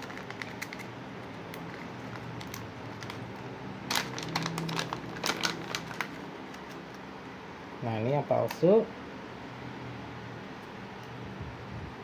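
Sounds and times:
plastic packaging crinkling: 0.0 - 6.9.

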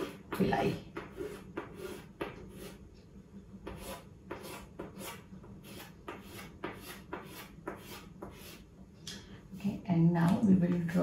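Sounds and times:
chalk scratching on a chalkboard: 0.0 - 2.8, 3.6 - 8.7.

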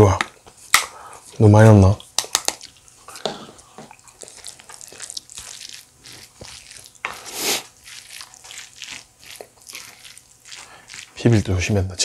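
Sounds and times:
wet rice squishing: 0.7 - 12.0.

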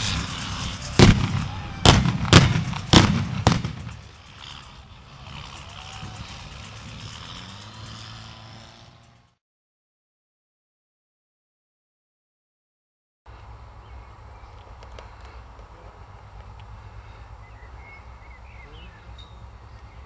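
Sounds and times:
fireworks blasts: 0.0 - 8.3.

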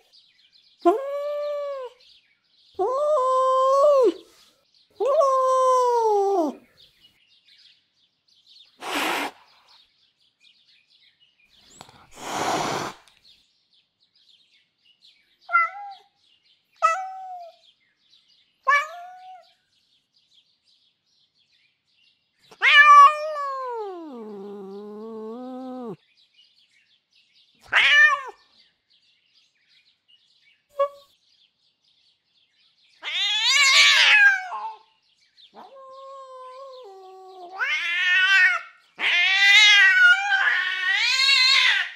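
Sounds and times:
cat hissing: 8.8 - 9.8, 11.8 - 13.2
cat screeching: 15.5 - 16.0, 16.8 - 17.6, 18.7 - 19.4, 22.6 - 26.0, 27.6 - 28.4, 33.0 - 34.8, 35.6 - 41.9
cat meowing: 15.5 - 16.1, 16.8 - 17.6, 18.7 - 19.4, 22.6 - 26.0, 27.6 - 28.4, 33.0 - 34.8, 35.6 - 41.9
cat growling: 22.6 - 26.0, 35.6 - 41.9.

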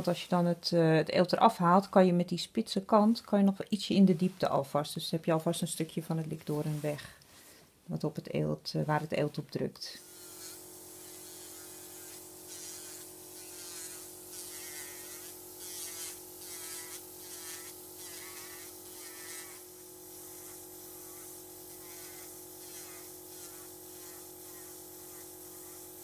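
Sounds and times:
pedicure drill whine: 10.0 - 26.0
scratchy sanding on skin: 10.1 - 25.8.

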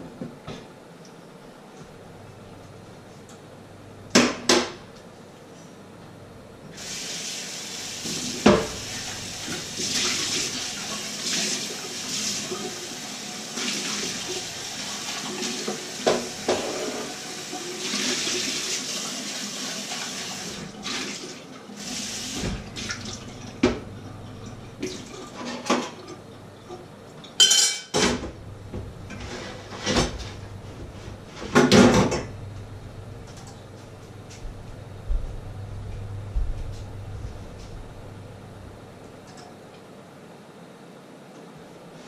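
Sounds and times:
water running from a tap: 6.8 - 26.3
metal pots and utensils clattering: 24.8 - 26.2, 27.4 - 28.2.

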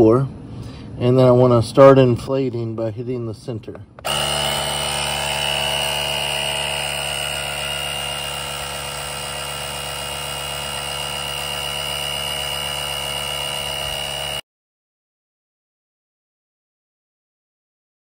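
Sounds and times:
tire inflator compressor buzzing: 4.0 - 14.4.

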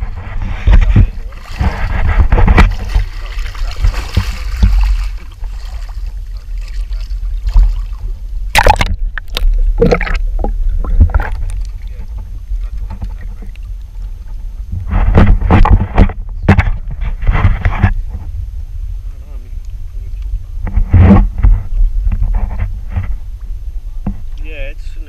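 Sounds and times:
water splashing against boat: 0.0 - 18.3
wind rumble on microphone: 0.0 - 25.0.

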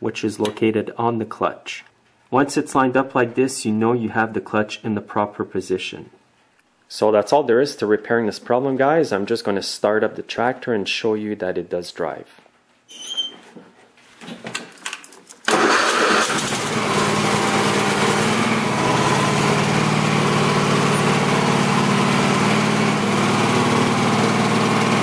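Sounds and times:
lawn tractor engine running: 15.5 - 25.0.

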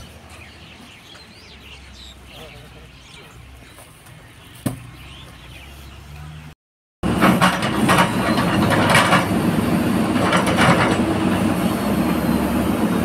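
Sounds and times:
backhoe loader running: 7.0 - 13.0
knocks and clatter: 7.1 - 9.3, 10.1 - 11.1.

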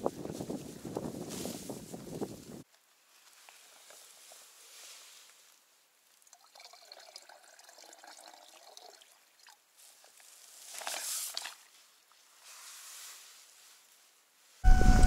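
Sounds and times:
water pouring into plastic bag: 6.2 - 11.8.

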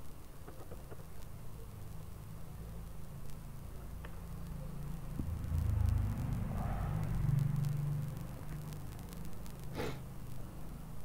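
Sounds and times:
low rumble: 5.0 - 8.8.

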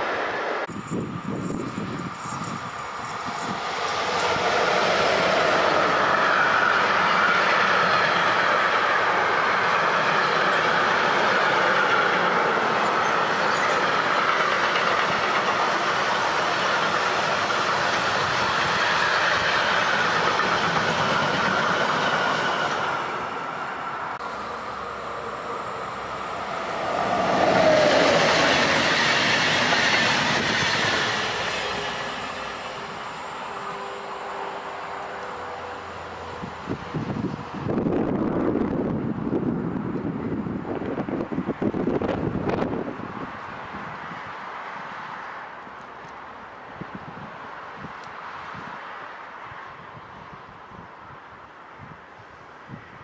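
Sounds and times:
train wheel squeal: 0.0 - 37.4
train rumbling on rails: 0.0 - 53.0.

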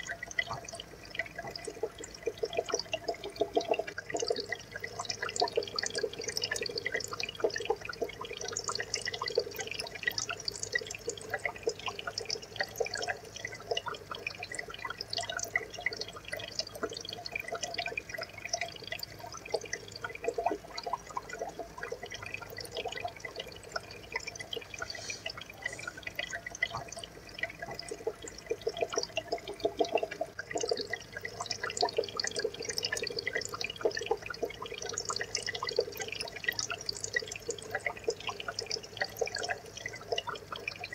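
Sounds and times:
aquarium water trickling: 0.0 - 40.9
small water drips: 0.0 - 40.9.

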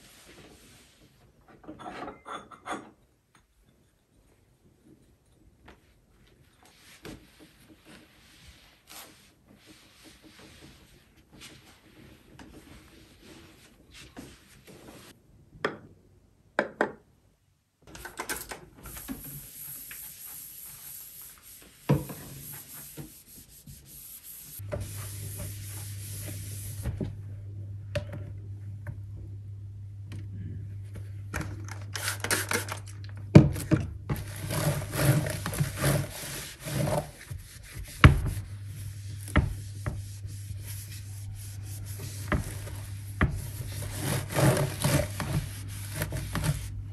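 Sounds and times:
cloth wiping surfaces: 6.2 - 15.2, 18.9 - 27.0, 34.5 - 46.9
steady low hum: 24.5 - 31.8, 37.4 - 46.9.

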